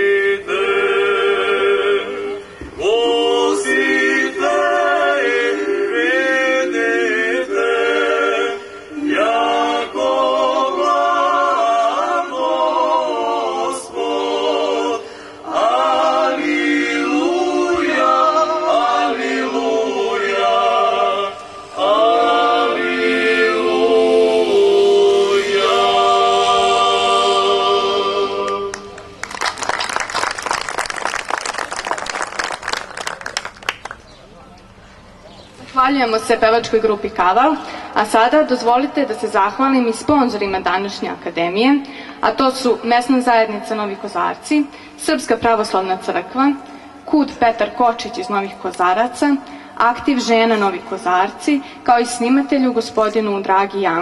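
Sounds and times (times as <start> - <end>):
group singing a cappella: 0.0 - 29.0
audience applauding: 28.9 - 34.2.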